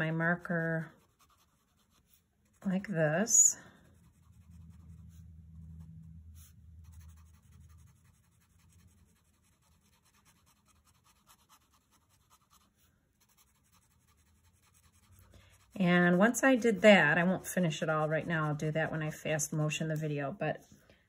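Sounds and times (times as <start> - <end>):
marker drawing on paper: 0.0 - 19.4
low hum: 2.5 - 9.2.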